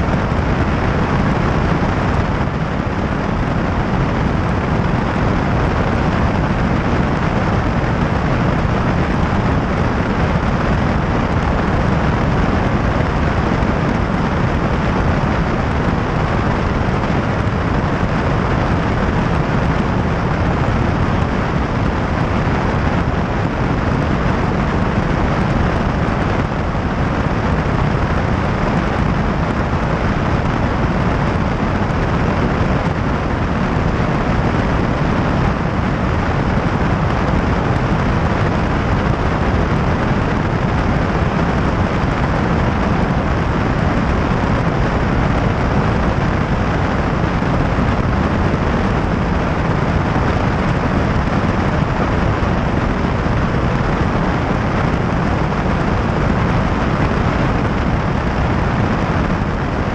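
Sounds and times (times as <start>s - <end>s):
airplane engine drone: 0.0s - 59.9s
rushing airflow: 0.0s - 59.9s.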